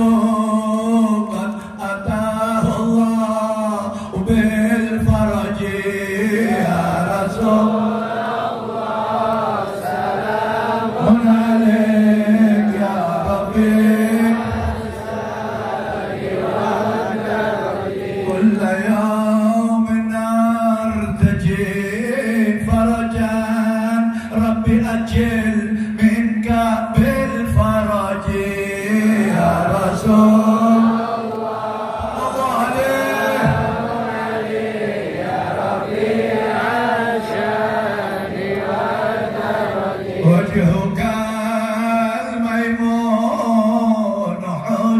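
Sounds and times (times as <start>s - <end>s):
men chanting slow melody: 0.0s - 19.5s, 27.0s - 41.9s.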